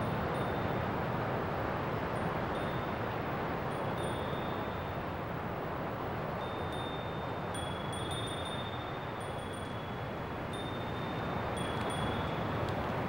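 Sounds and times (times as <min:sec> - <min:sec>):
small bells ringing: 0:00.0 - 0:00.8, 0:02.5 - 0:03.0, 0:03.8 - 0:05.0, 0:06.4 - 0:12.4
wind: 0:00.0 - 0:13.0.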